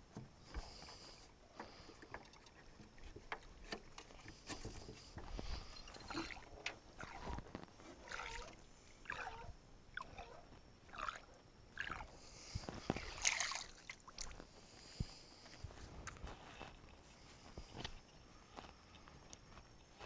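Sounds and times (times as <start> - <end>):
water splashing and sloshing: 1.6 - 14.5.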